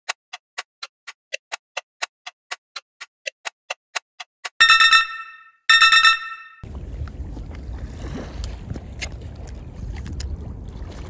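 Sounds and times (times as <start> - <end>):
bright chiming sound effect: 4.6 - 6.6
wind rumbling on microphone: 6.6 - 11.0.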